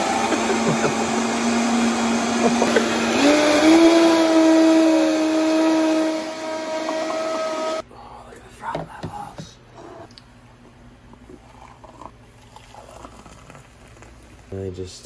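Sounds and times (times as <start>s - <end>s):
blender motor running: 0.0s - 7.8s.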